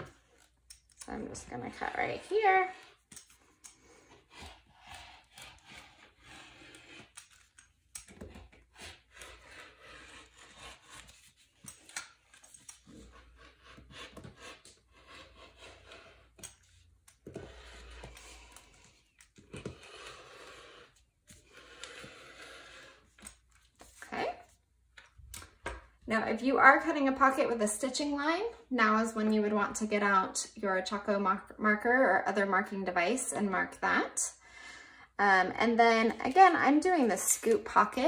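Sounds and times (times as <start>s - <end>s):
rotary cutter rasping through fabric: 0.0s - 23.6s.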